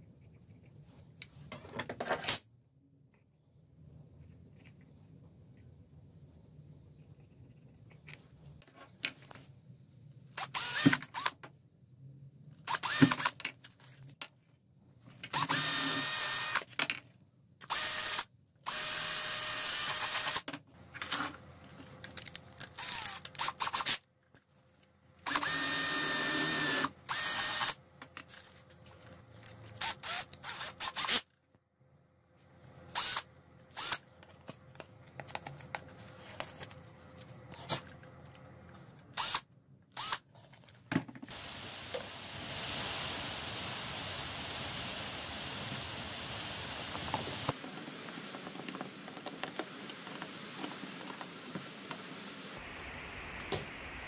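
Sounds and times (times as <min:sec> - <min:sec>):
power drill boring plastic: 0:10.4 - 0:11.3, 0:12.7 - 0:13.3, 0:15.3 - 0:16.7, 0:17.6 - 0:20.4, 0:22.8 - 0:24.0, 0:25.3 - 0:27.8, 0:29.7 - 0:31.2, 0:32.9 - 0:34.0, 0:39.2 - 0:39.4, 0:40.0 - 0:40.2.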